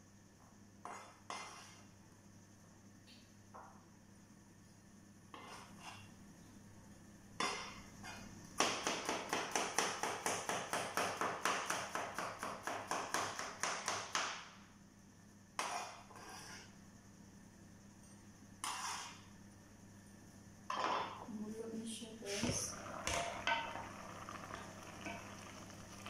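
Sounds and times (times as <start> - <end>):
knife chopping on plastic board: 8.6 - 14.5.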